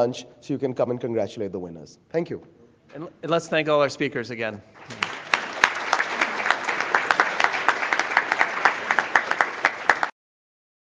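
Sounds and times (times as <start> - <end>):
audience applauding: 4.8 - 10.2.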